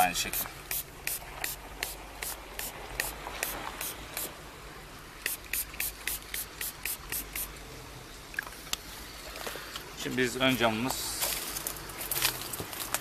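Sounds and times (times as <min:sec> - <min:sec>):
spray bottle spritzes: 0:00.2 - 0:04.3, 0:05.2 - 0:07.5.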